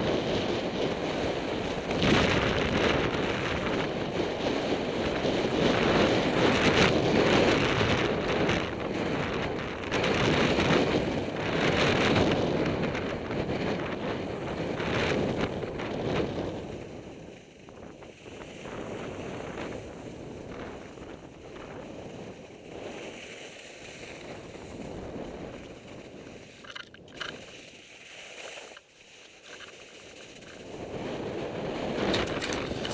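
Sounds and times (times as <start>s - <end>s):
wind on microphone: 0.0s - 27.8s, 29.5s - 32.9s
skis scraping on snow: 0.1s - 32.9s.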